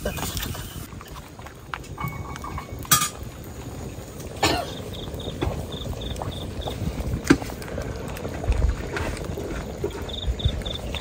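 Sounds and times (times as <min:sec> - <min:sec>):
cricket chirping: 0:04.6 - 0:06.8, 0:09.8 - 0:11.0.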